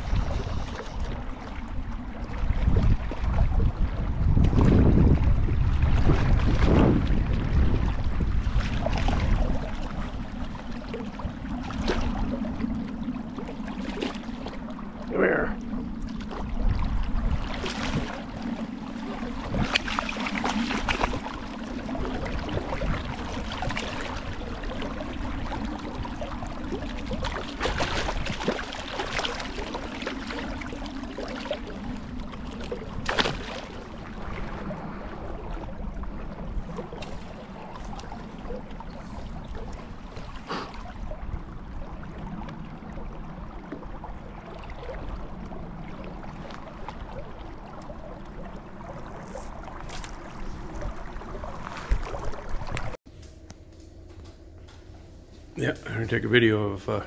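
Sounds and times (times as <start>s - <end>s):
steady low hum: 0.0s - 57.0s
fish splashing: 16.1s - 35.8s.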